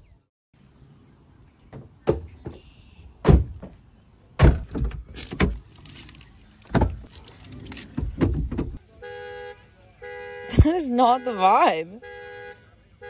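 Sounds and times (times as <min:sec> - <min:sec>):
van doors knocking and clunking: 0:01.7 - 0:05.7, 0:06.7 - 0:07.1, 0:07.7 - 0:08.8.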